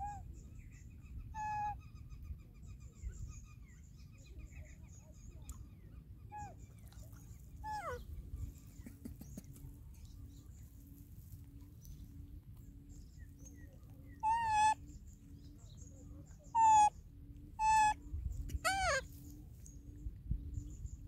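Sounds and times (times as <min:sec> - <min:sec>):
baby macaque coo calls: 0:01.4 - 0:01.8, 0:14.2 - 0:14.8, 0:16.5 - 0:16.9, 0:17.6 - 0:19.1.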